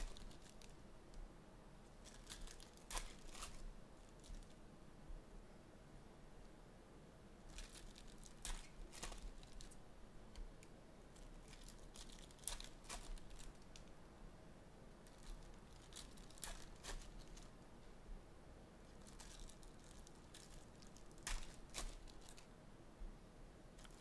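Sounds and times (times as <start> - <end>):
foil wrapper crinkling and tearing: 0.0 - 0.8, 2.0 - 4.6, 7.5 - 9.8, 11.2 - 13.8, 15.1 - 17.5, 19.0 - 22.5, 23.8 - 24.0.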